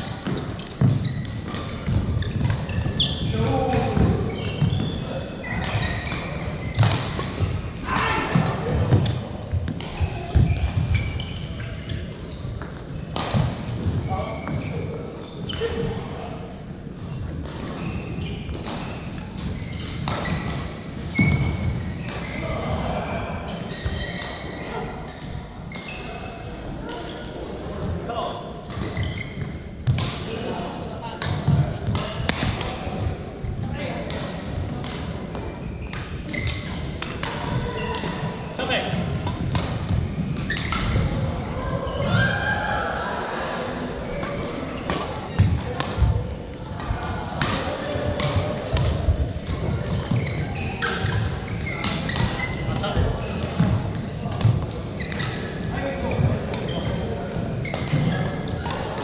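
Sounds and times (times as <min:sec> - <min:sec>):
shoe squeaks on court: 0:00.6 - 0:03.6, 0:04.2 - 0:07.8, 0:09.9 - 0:12.5, 0:17.8 - 0:20.5, 0:21.2 - 0:24.8, 0:28.8 - 0:29.7, 0:35.5 - 0:37.0, 0:37.6 - 0:42.1, 0:44.0 - 0:45.0, 0:49.9 - 0:58.8
shuttlecocks struck by rackets: 0:12.1 - 0:13.9, 0:28.6 - 0:30.5, 0:31.2 - 0:33.3, 0:34.0 - 0:38.3, 0:38.9 - 0:41.4, 0:44.2 - 0:59.0.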